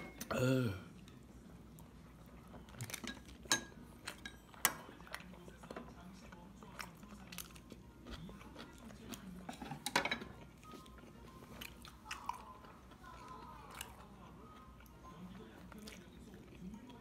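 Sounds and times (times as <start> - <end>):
chewing and biting: 5.0 - 17.0.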